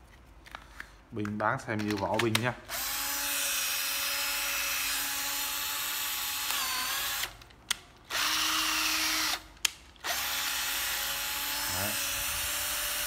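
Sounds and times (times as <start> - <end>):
cordless drill motor whining: 2.7 - 7.4, 8.1 - 13.0.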